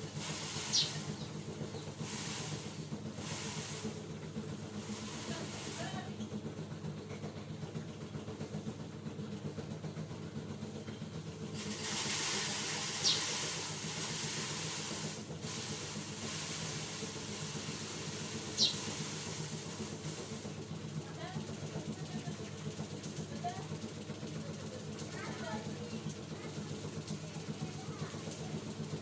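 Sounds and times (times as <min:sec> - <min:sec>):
hiss: 0:00.0 - 0:06.2, 0:11.4 - 0:20.9
motor humming: 0:00.0 - 0:29.0.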